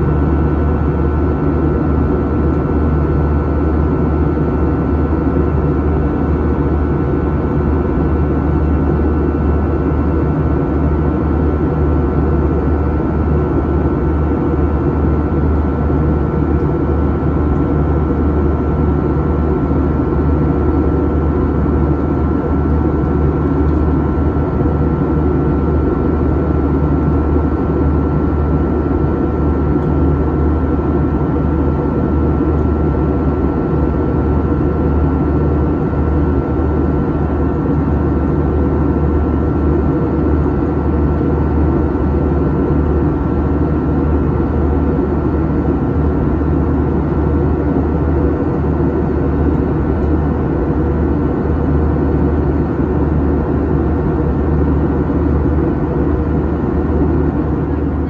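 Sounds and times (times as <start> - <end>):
jet engine drone: 0.0 - 58.0
thin steady whine: 42.4 - 58.0.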